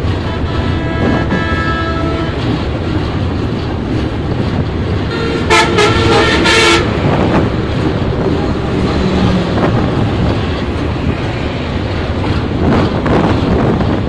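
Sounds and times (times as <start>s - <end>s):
train rumbling: 0.0s - 14.0s
vehicle horn honking: 0.3s - 2.4s, 5.1s - 7.0s.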